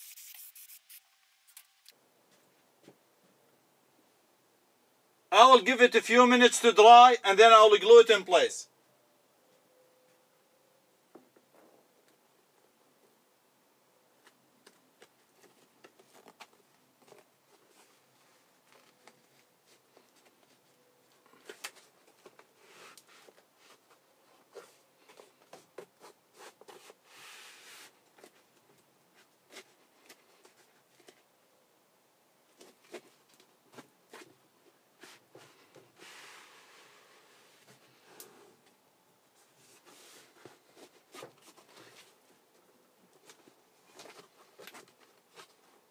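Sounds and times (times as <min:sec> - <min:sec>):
rubbing sound: 0:00.0 - 0:01.7, 0:25.9 - 0:28.4, 0:35.0 - 0:37.7, 0:39.4 - 0:42.1
rubber mat rustles and taps: 0:14.2 - 0:18.0.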